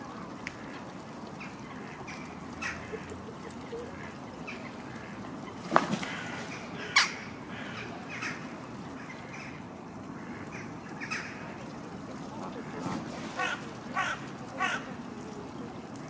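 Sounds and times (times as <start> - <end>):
outdoor background noise: 0.0 - 16.0
birds calling: 1.3 - 11.6.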